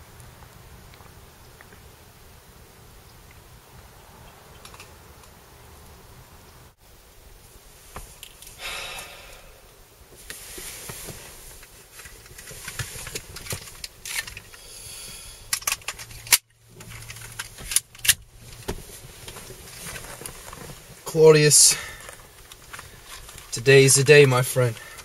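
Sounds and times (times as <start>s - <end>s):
handgun clicks and rattles: 12.0s - 14.6s, 15.5s - 18.2s.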